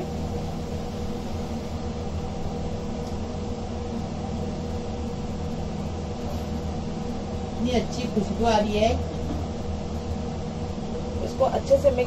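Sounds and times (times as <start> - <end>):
low machine hum: 0.0 - 12.0.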